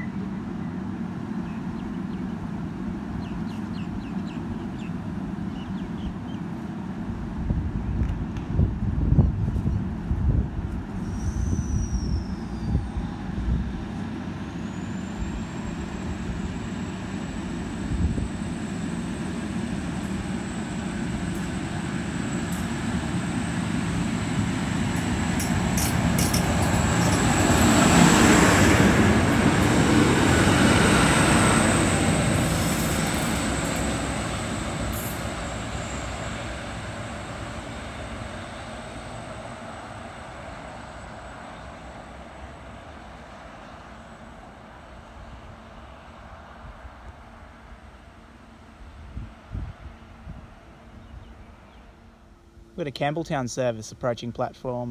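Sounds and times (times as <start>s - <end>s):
diesel railcar passing: 0.0s - 9.1s, 9.8s - 52.8s
wind buffeting microphone: 7.1s - 14.0s, 48.8s - 51.4s.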